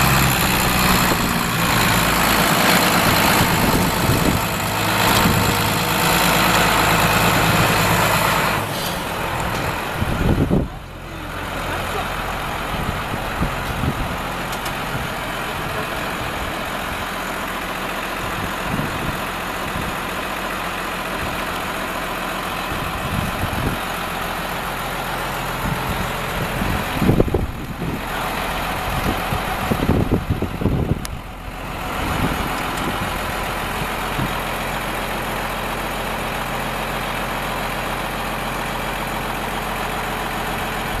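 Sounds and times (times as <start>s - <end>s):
tractor diesel engine idling: 0.0s - 41.0s
wind buffeting microphone: 0.4s - 5.9s, 9.3s - 10.8s, 12.6s - 14.3s, 18.3s - 20.0s, 25.6s - 34.4s.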